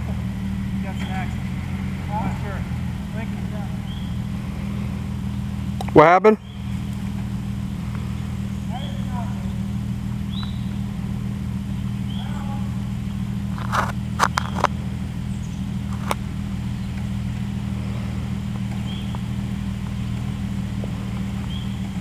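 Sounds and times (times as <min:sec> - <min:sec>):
car engine idling: 0:00.0 - 0:22.0
sharp clicks: 0:13.6 - 0:14.8.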